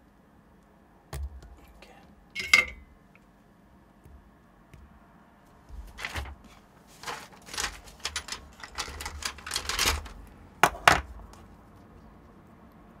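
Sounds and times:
tools rustling and clattering: 0:02.4 - 0:02.9, 0:05.7 - 0:11.2.

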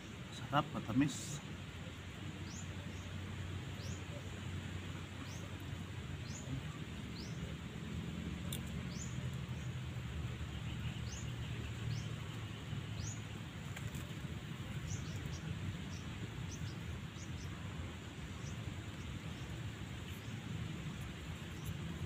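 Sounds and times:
steady low rumble: 0:00.0 - 0:22.0
small bird chirping: 0:05.0 - 0:22.0.

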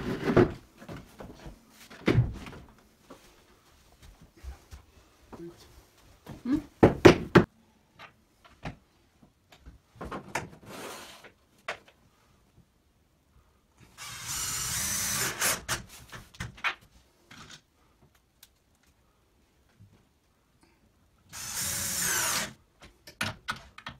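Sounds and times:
cordless drill driving screw: 0:14.0 - 0:15.6, 0:21.3 - 0:22.6.

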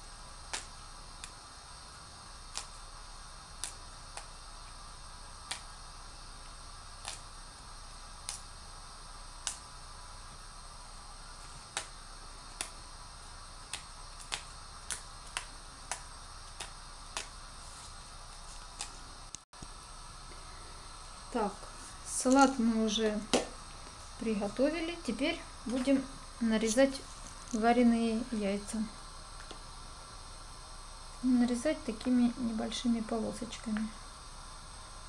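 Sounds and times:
faint hiss: 0:00.0 - 0:35.0
lettuce leaves tearing: 0:07.0 - 0:07.2, 0:16.6 - 0:19.0.

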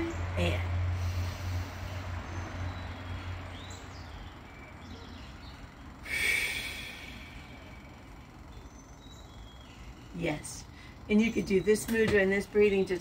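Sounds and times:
low hum: 0:00.0 - 0:11.7
woman breathing slowly: 0:00.8 - 0:02.6, 0:06.0 - 0:08.0
faint bird chirps: 0:01.8 - 0:12.0
breath blown out through lips: 0:06.0 - 0:07.6.

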